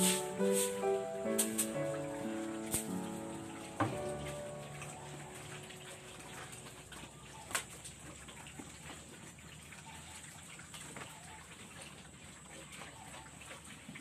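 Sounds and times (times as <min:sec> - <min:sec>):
pigs slurping at a wet trough: 0:02.8 - 0:14.0.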